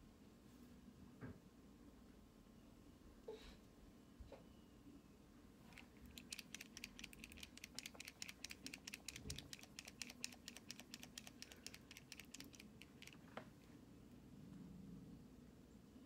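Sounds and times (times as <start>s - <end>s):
faint rapid typing: 5.7s - 13.4s.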